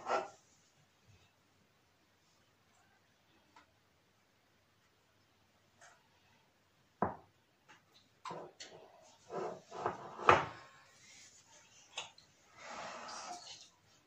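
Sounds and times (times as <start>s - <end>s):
kitchen things knocking on countertop: 7.0s - 7.3s.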